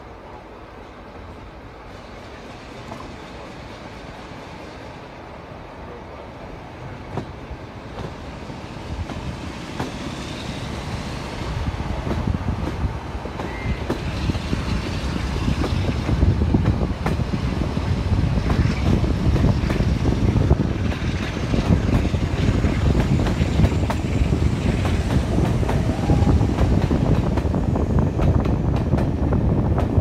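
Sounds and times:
train wheels rumbling on track: 0:00.0 - 0:30.0
wind buffeting microphone: 0:08.8 - 0:30.0.

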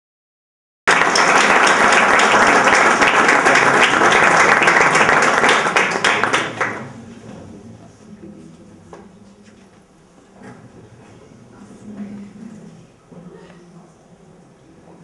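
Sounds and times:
audience applauding: 0:00.9 - 0:07.0.

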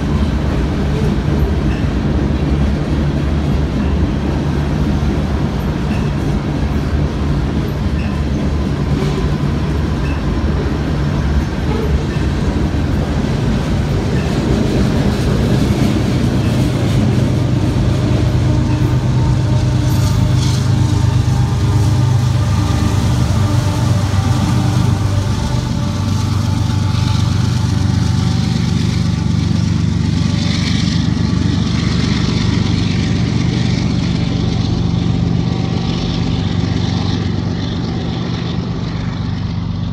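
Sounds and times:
diesel locomotive engine drone: 0:00.0 - 0:39.9
freight train rolling past: 0:00.0 - 0:39.9.

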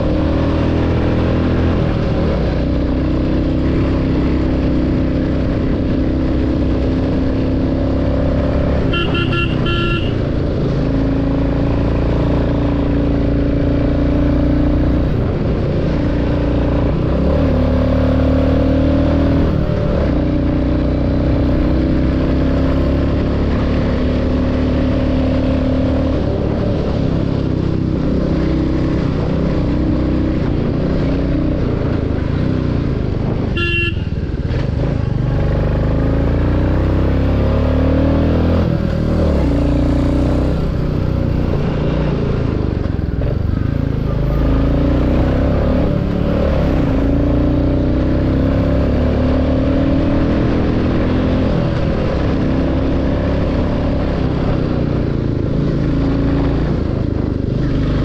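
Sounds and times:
motorcycle engine running: 0:00.0 - 0:37.9
double horn beep: 0:08.8 - 0:10.3, 0:33.5 - 0:34.3.

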